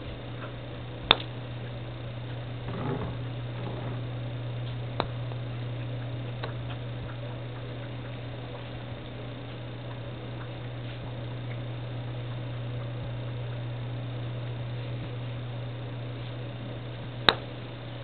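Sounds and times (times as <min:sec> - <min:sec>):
steady low hum: 0:00.0 - 0:18.0
putter striking golf ball: 0:02.6 - 0:04.0.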